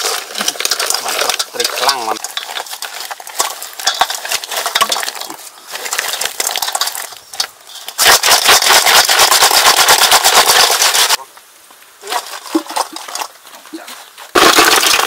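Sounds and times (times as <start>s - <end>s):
snail shells clicking in metal bowl: 0.0s - 11.2s, 14.4s - 15.0s.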